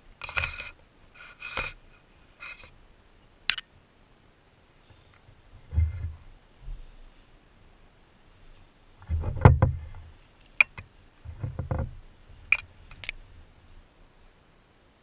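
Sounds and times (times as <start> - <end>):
dull thumps in boat: 9.0 - 9.9.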